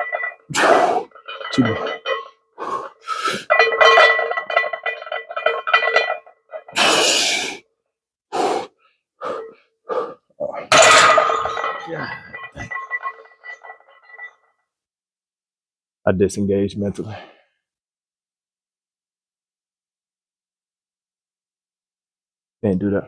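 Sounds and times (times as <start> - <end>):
person straining breathing and grunting: 0.5 - 1.6, 2.5 - 3.5, 6.6 - 7.6, 8.3 - 10.7.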